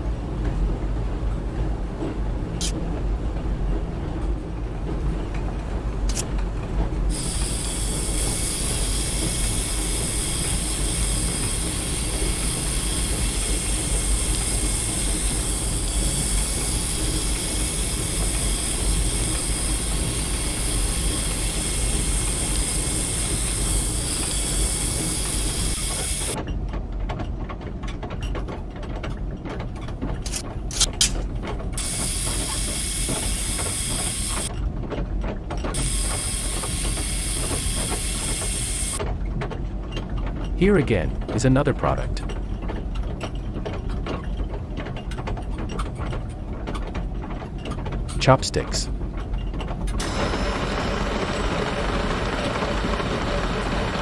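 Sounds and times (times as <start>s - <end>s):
production-line machinery running: 0.0s - 27.2s, 29.8s - 54.0s
sanding drums hissing: 7.2s - 26.4s.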